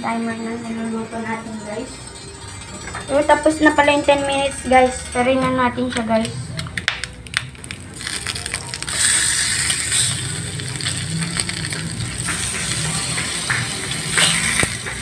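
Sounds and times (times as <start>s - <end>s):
meat sizzling in skillet: 8.0s - 15.0s.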